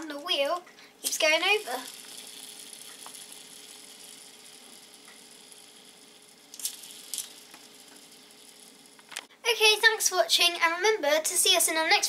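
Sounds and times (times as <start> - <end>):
steady low hum: 0.0 - 10.8
plastic toy ticking: 1.0 - 9.3.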